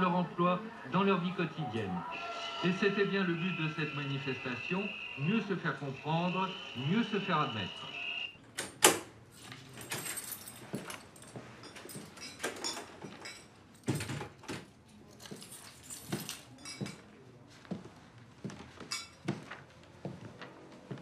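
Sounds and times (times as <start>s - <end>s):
keys jingling: 9.3s - 17.0s
footsteps: 15.3s - 21.0s.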